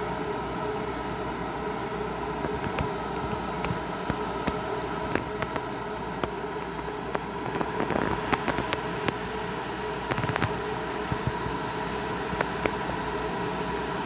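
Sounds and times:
electric locomotive humming: 0:00.0 - 0:14.0
sharp clicks and crackles: 0:02.4 - 0:09.2, 0:10.0 - 0:11.5, 0:12.3 - 0:13.0.

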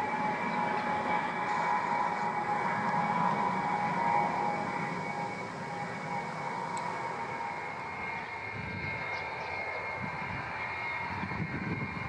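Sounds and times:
distant jet engines whining: 0:00.0 - 0:12.0
wind rumbling on microphone: 0:04.4 - 0:12.0.

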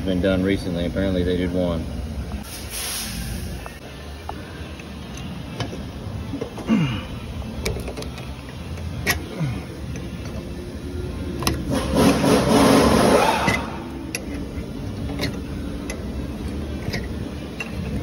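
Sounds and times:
engine hum: 0:00.0 - 0:18.0
loud hissing rush: 0:02.4 - 0:03.6.

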